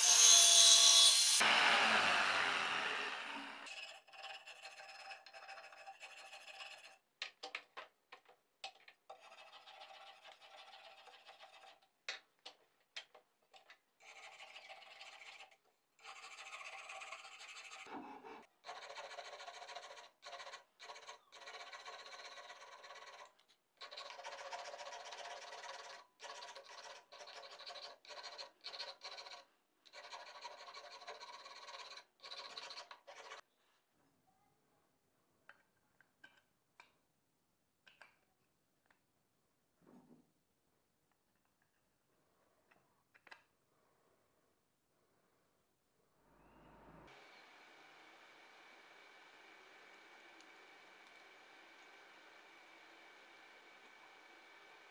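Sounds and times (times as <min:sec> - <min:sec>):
metal file rasping on wood: 0:03.6 - 0:07.0, 0:09.1 - 0:11.8, 0:14.0 - 0:33.4.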